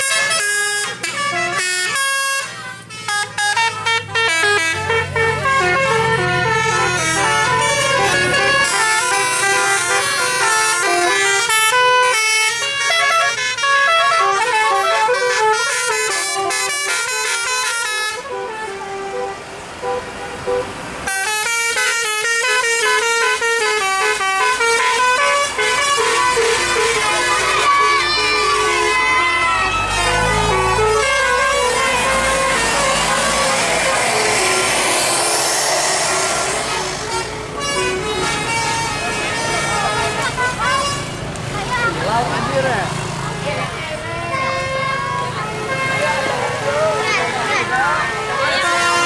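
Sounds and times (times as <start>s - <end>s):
air horns playing melodic tunes: 0.0s - 41.2s, 43.9s - 49.0s
hiss: 33.2s - 37.4s.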